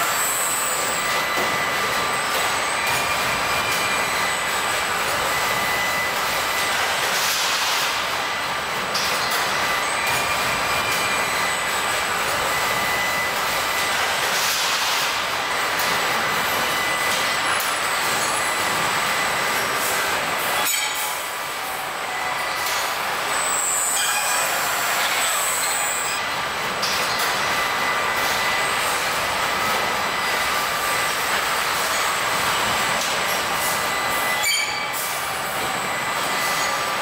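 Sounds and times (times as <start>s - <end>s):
high-pitched whines: 0.0s - 6.2s, 16.3s - 26.3s, 27.1s - 37.0s
machinery and ventilation hiss: 0.0s - 37.0s.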